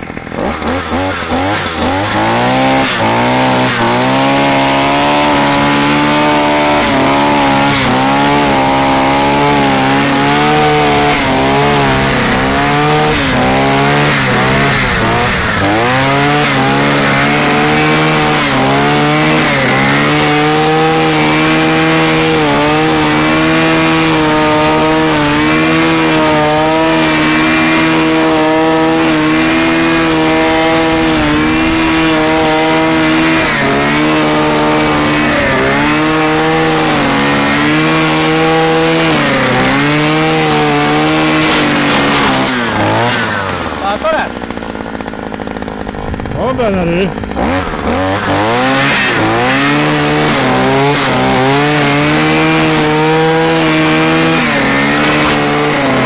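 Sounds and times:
brushcutter cutting grass: 0.0 - 56.0.

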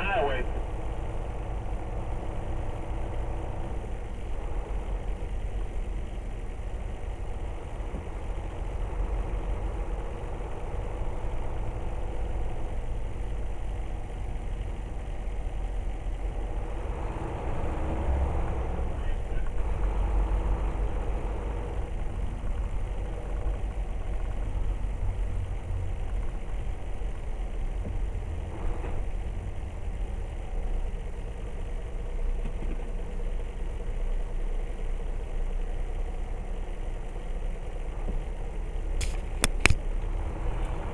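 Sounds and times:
truck engine rumble: 0.0 - 40.9
short sharp clicks: 39.0 - 39.8.

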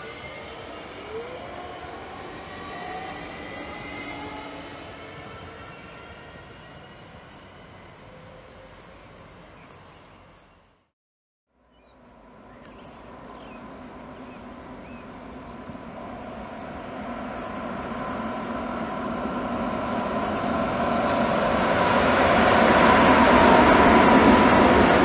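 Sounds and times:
electric locomotive hum: 12.1 - 25.0
train wheels rumbling on rails: 13.1 - 25.0.

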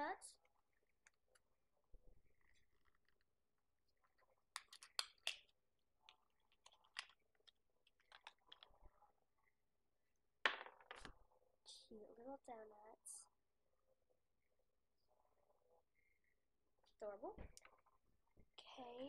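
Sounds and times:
faint clicks of toy pieces: 4.1 - 9.0.

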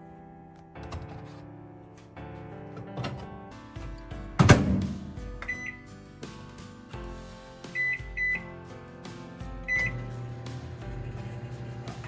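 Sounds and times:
soft background music: 0.0 - 12.0
short high keypad beeps: 5.5 - 5.8, 9.7 - 10.0.

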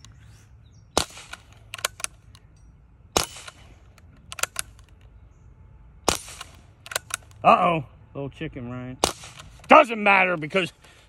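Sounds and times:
air rifle shot: 0.9 - 2.1, 3.1 - 4.7, 6.0 - 7.3, 9.0 - 9.7.

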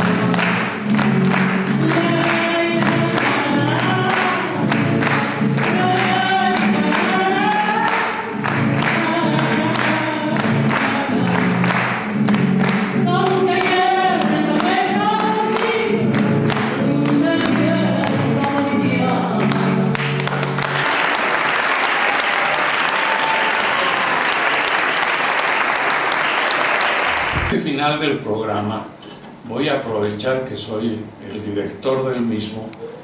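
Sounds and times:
audience applause: 0.0 - 13.8, 19.4 - 27.6
strummed guitar: 0.0 - 20.8
woman singing: 1.7 - 12.0, 12.8 - 20.0.

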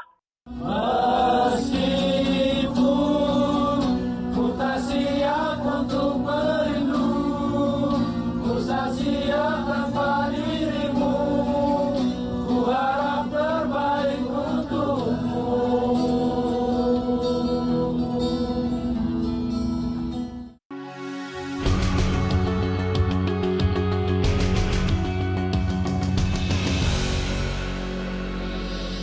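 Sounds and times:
men singing in unison: 0.6 - 18.7
strummed acoustic guitar: 1.0 - 20.5.

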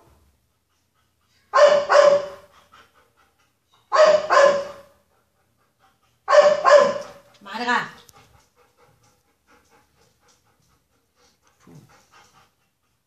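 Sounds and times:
dog barking loudly: 1.5 - 2.5, 3.9 - 4.9, 6.3 - 7.2.

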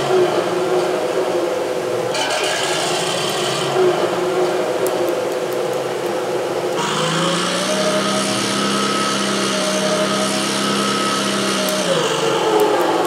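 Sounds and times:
tank engine sound through speaker: 6.7 - 13.0.

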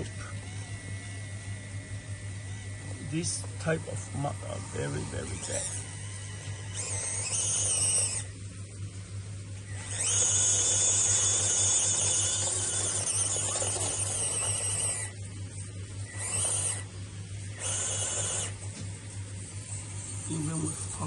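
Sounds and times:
electric motor whining: 0.0 - 21.0.

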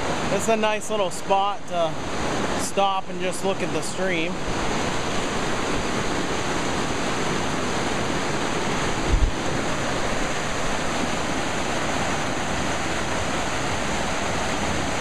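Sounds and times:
water rushing over rocks: 0.0 - 15.0.

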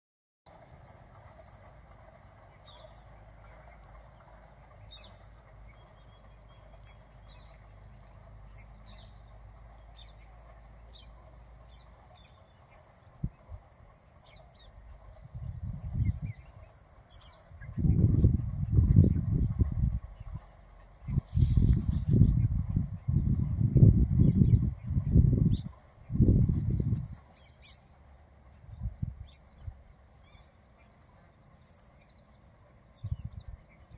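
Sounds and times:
insects chirping: 0.5 - 33.9
low background rumble: 0.6 - 33.9
small birds chirping: 2.5 - 13.5, 15.8 - 23.2, 24.0 - 28.0
wind buffeting microphone: 13.1 - 14.0, 14.6 - 27.5, 28.4 - 30.0, 32.9 - 33.9.

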